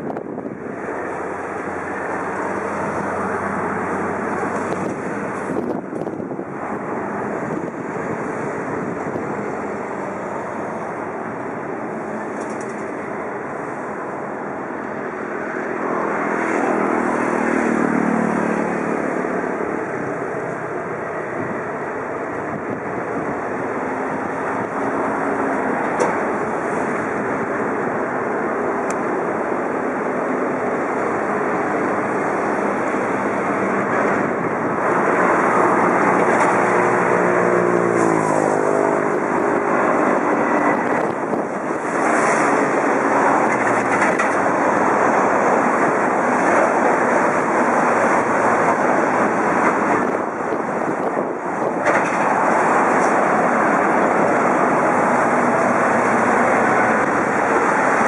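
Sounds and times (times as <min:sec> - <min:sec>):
jet airliner passing overhead: 0:00.0 - 0:58.0.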